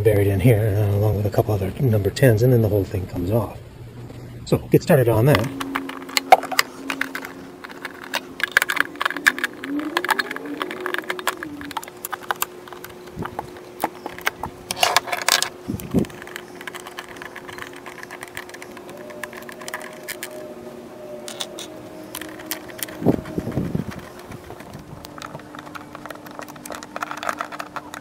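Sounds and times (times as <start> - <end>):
faint hum: 0.0 - 28.0
metal tools clinking: 21.2 - 28.0
socket wrench clicking: 21.3 - 28.0.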